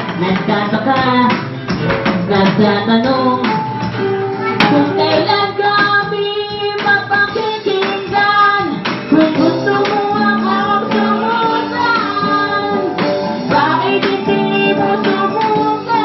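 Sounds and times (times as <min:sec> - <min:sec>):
strummed acoustic guitar: 0:00.0 - 0:05.6
electronic drum beat: 0:00.0 - 0:16.0
woman singing into microphone: 0:00.0 - 0:16.0.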